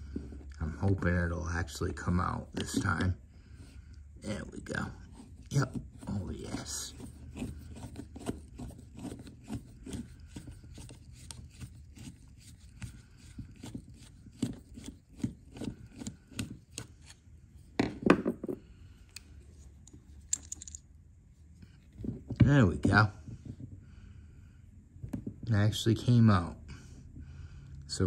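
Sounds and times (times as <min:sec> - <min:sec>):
screwdriver scraping metal: 0:05.1 - 0:17.2
metal part clattering: 0:20.2 - 0:20.8.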